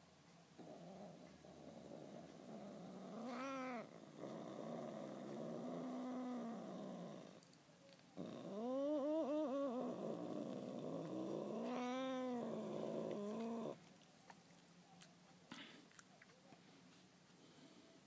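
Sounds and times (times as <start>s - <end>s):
cat growling: 0.6s - 7.5s, 8.2s - 13.9s
cat yowling: 3.2s - 3.9s, 11.5s - 13.8s.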